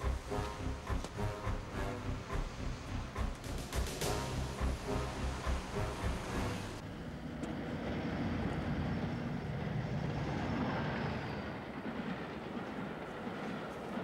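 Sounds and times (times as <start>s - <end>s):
lorry passing: 0.0s - 9.7s
street traffic: 0.0s - 11.3s
low vehicle rumble: 0.0s - 13.4s.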